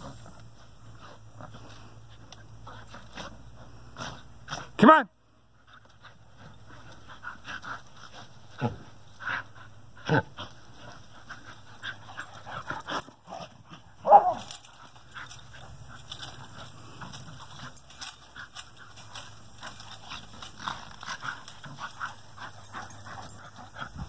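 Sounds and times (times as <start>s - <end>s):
dogs panting: 0.0s - 24.0s
dog yipping: 14.0s - 14.5s.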